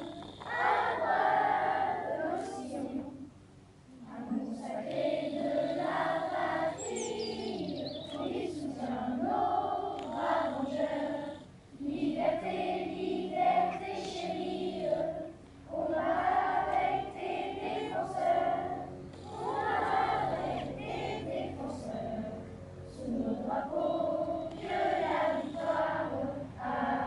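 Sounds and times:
chorus of voices singing: 0:00.0 - 0:03.3, 0:04.0 - 0:27.0.

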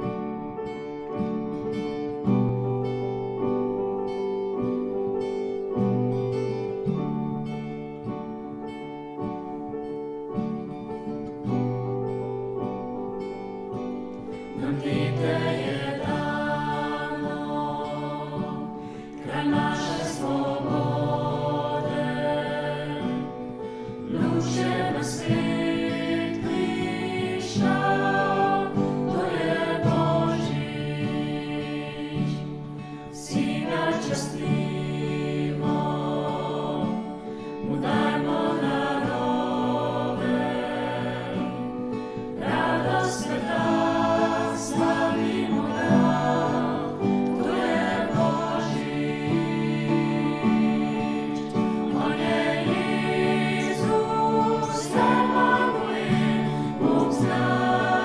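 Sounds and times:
acoustic guitar: 0:00.0 - 0:58.0
piano: 0:00.0 - 0:58.0
choir singing: 0:13.2 - 0:58.0.

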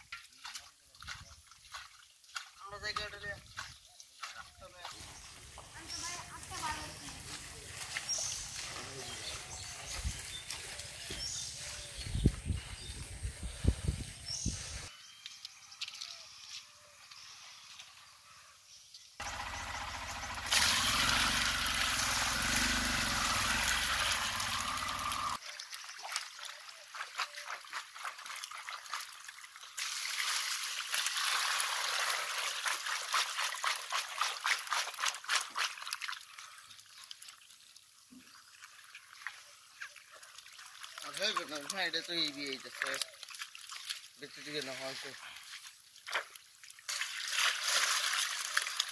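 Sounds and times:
water trickling and pouring: 0:20.5 - 0:48.9
fish wriggling with wet slaps: 0:32.6 - 0:36.3, 0:40.2 - 0:44.2, 0:45.5 - 0:48.9.

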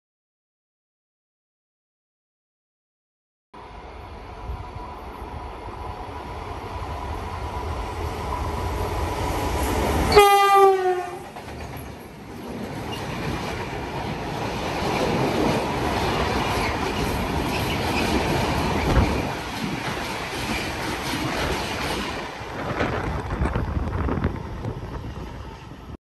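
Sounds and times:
train wheels rumbling and clattering: 0:06.9 - 0:26.0
train horn blast: 0:10.1 - 0:11.3.

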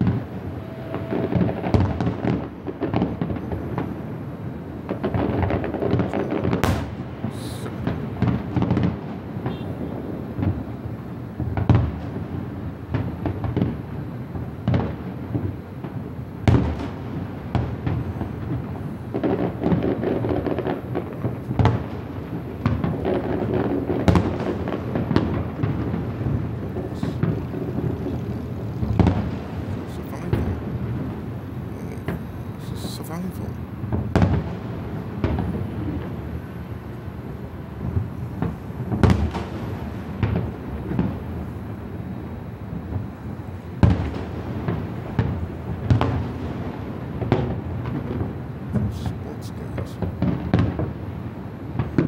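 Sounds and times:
fireworks booming and crackling: 0:00.0 - 0:52.0.

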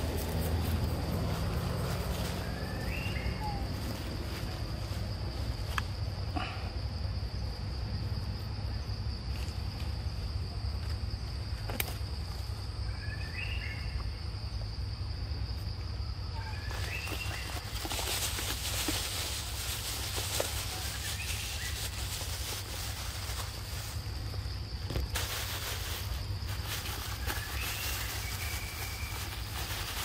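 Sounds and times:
loud rustle: 0:16.6 - 0:30.0.

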